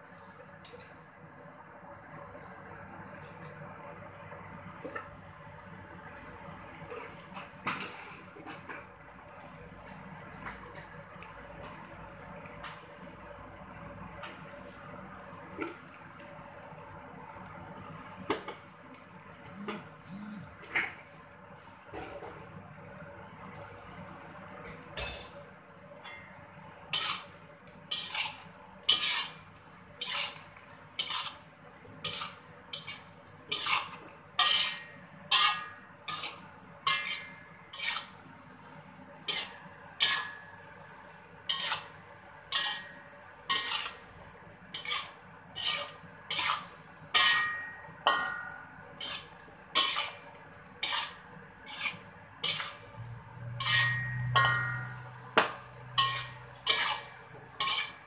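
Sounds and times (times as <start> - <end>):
metal spatula scraping a wok: 26.9 - 38.3, 39.2 - 40.5, 41.4 - 58.0.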